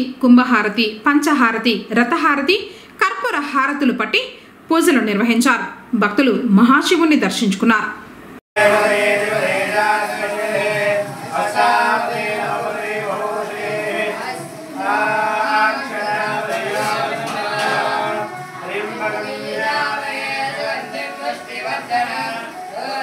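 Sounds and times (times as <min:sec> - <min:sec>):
men singing a devotional chant: 0:08.6 - 0:23.0.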